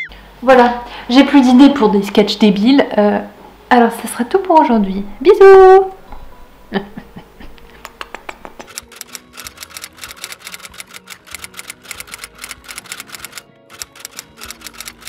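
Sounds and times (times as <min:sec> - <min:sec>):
soft background music: 0:00.4 - 0:15.0
typing clicks: 0:08.6 - 0:15.0.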